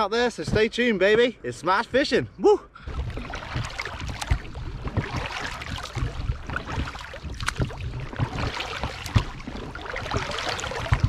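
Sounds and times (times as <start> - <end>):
boat and oar knocks: 0.4 - 1.3, 2.8 - 11.0
water splashing and lapping: 2.8 - 11.0.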